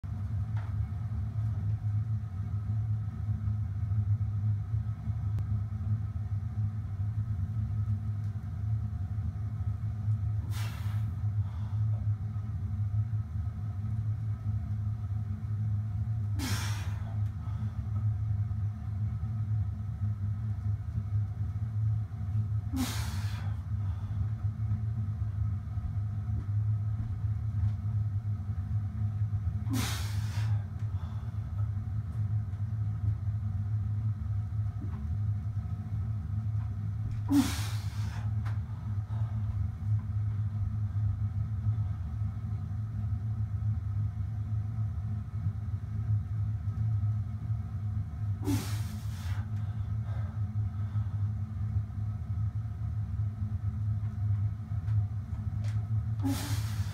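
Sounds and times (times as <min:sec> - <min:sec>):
low machine hum: 0:00.0 - 0:56.9
man breathing hard: 0:10.4 - 0:12.1, 0:16.4 - 0:18.0, 0:22.7 - 0:24.5, 0:29.6 - 0:31.7, 0:37.2 - 0:39.7, 0:48.4 - 0:51.4, 0:56.2 - 0:56.9.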